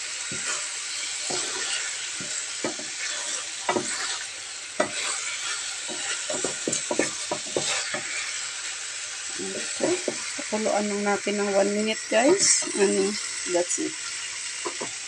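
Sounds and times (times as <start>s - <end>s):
food sizzling in a frying pan: 0.0s - 15.0s
spatula knocking against pan: 2.2s - 2.9s, 3.7s - 4.0s, 5.9s - 8.1s, 10.0s - 10.3s, 14.6s - 15.0s.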